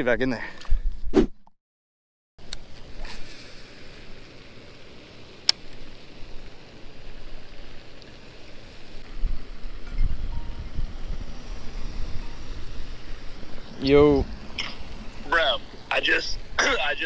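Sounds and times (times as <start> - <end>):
wind and water hiss: 2.4 - 17.0
wind rumble on microphone: 9.0 - 15.2.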